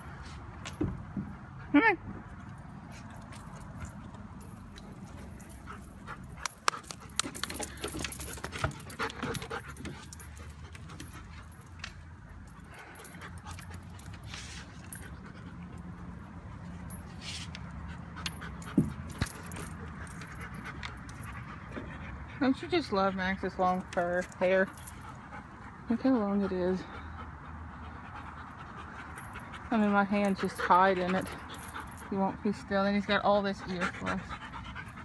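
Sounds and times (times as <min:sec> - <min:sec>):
rustling and clicking: 0:02.4 - 0:15.2
puppy panting and whimpering: 0:03.6 - 0:35.0.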